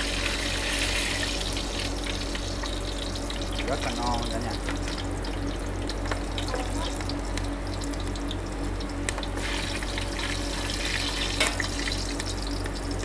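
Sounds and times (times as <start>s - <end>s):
hot oil sizzling: 0.0s - 13.0s.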